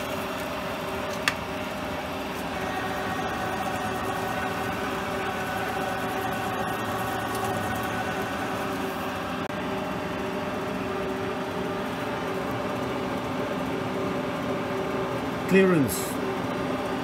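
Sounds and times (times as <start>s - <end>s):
milling machine cutting metal: 0.0s - 9.5s.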